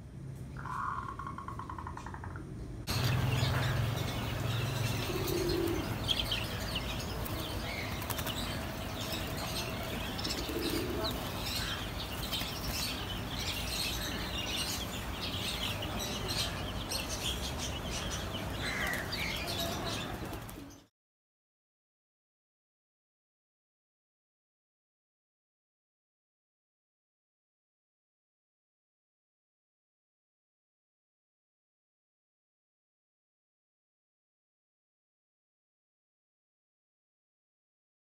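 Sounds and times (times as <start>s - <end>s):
birds chirping: 0.5s - 20.9s
doves cooing: 3.0s - 15.0s
wings flapping: 6.8s - 13.2s, 18.9s - 20.8s.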